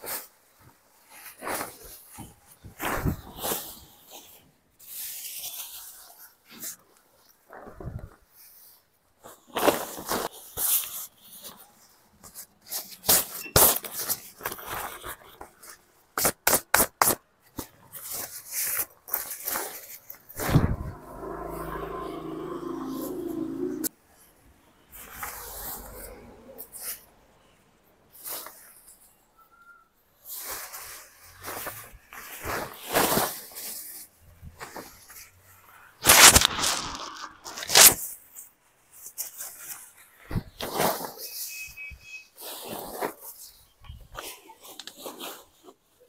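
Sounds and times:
tent fabric rustling and flapping: 0.0s - 16.3s, 30.2s - 41.4s
tent fabric rustling: 30.2s - 41.4s.

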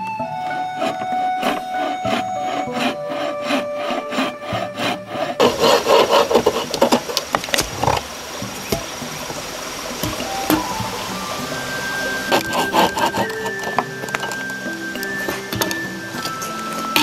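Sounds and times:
hand saw cutting wood: 0.5s - 8.1s, 11.6s - 17.0s.

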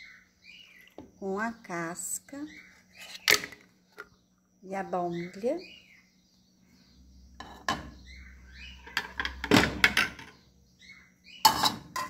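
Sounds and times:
dishes and utensils clinking: 11.4s - 12.0s.

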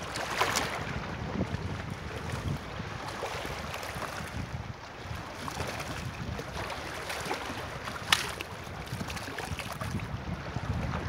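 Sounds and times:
small water splashes: 0.0s - 10.2s
seawater lapping over rocks: 0.0s - 11.0s
wind rumbling on microphone: 0.0s - 11.0s.

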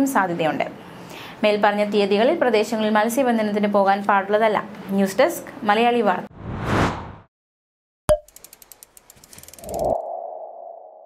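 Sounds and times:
rising low rumble: 6.3s - 7.2s
rapid ticks: 8.2s - 9.8s.

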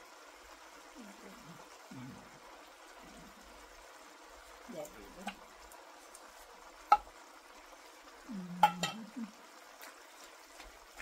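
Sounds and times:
faint frying sizzle: 0.0s - 11.0s
spatula knocking on pan: 6.9s - 7.1s, 8.6s - 9.1s.

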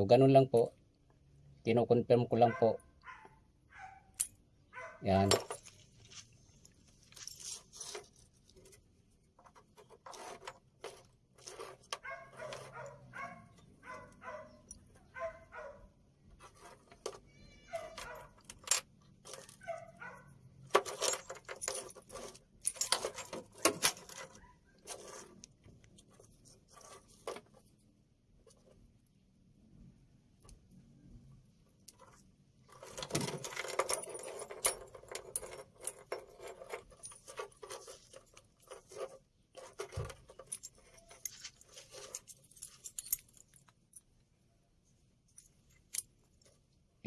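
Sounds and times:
keys jangling on a ring: 40.3s - 44.0s.

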